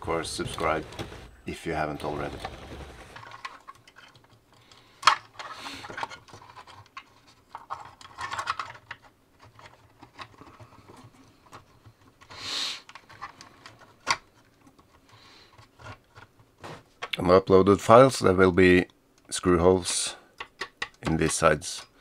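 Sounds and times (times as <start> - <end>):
plastic connectors and wires clicking: 3.2 - 17.2, 20.4 - 21.4.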